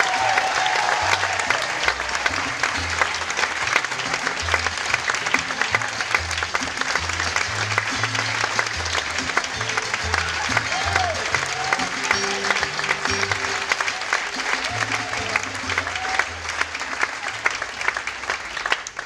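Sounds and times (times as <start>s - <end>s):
background music with bass: 0.0s - 17.1s
audience applauding: 0.0s - 19.0s.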